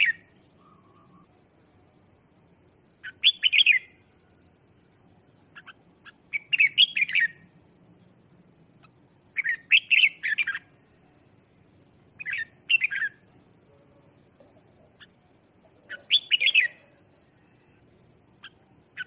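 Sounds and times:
bulbul singing warbling whistles: 0.0s - 1.3s, 3.0s - 4.4s, 5.5s - 7.5s, 8.7s - 11.0s, 12.2s - 13.3s, 14.3s - 19.0s.

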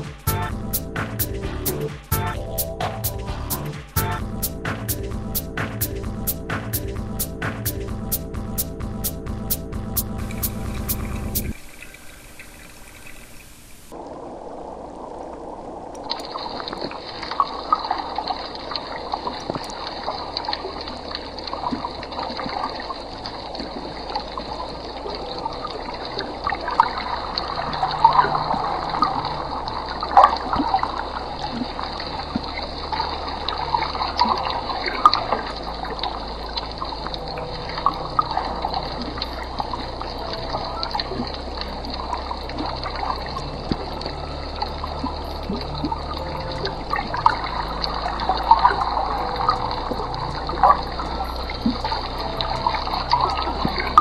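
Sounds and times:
steady hiss: 9.5s - 16.8s
aquarium water trickling and bubbling: 10.2s - 54.0s.

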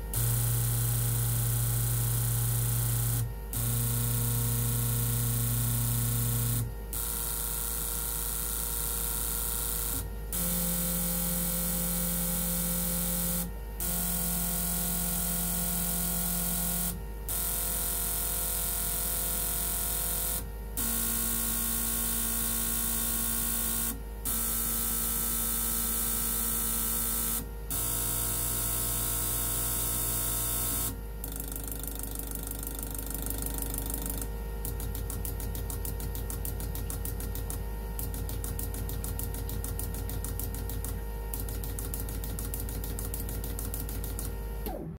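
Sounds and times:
fuel injectors buzzing: 0.0s - 17.7s, 19.0s - 44.9s
fast even clicking: 33.4s - 44.3s.

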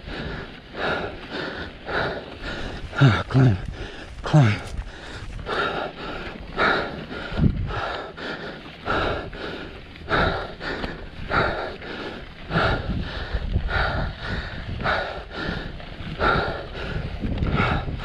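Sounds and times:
person breathing hard: 0.0s - 18.0s.

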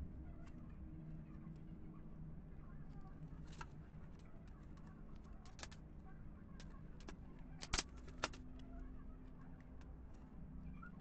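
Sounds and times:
plastic strips knocking together: 6.6s - 8.4s.

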